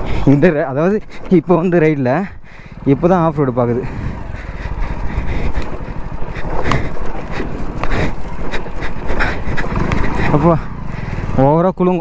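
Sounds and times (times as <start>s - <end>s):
motorcycle engine running slowly: 0.0s - 12.0s
motorcycle rattles and knocks: 2.7s - 11.5s.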